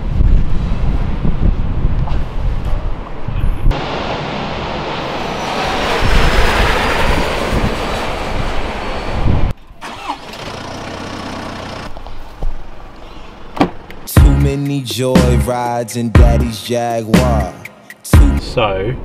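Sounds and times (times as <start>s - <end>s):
loud vehicle noise: 0.0s - 14.1s.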